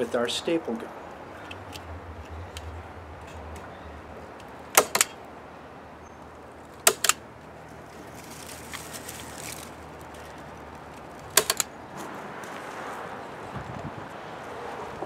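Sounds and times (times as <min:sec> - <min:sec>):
staple gun snapping: 0:06.9 - 0:07.2, 0:11.4 - 0:11.6.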